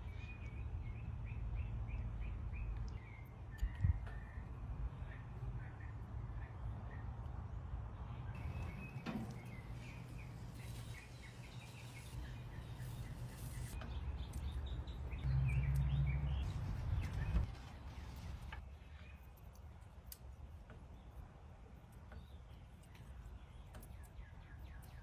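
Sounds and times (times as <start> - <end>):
birds chirping: 8.0 - 19.4.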